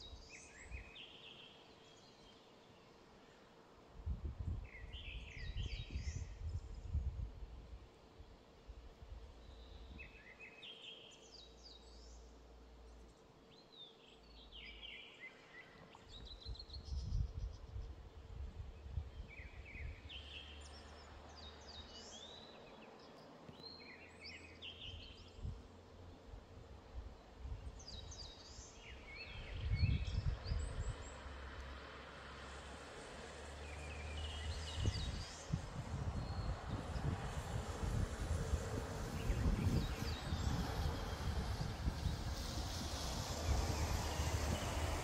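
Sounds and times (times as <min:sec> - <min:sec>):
skylarks singing: 0:39.0 - 0:42.2.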